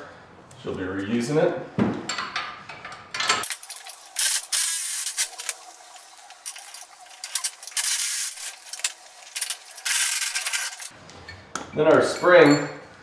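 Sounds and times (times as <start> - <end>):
metal scraping and rubbing: 2.7 - 11.0.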